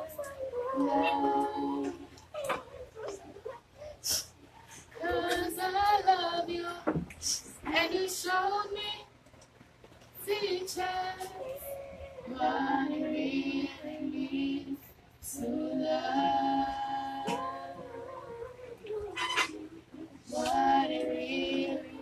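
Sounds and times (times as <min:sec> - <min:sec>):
children singing: 0:00.0 - 0:03.6, 0:04.9 - 0:07.0, 0:10.2 - 0:22.0.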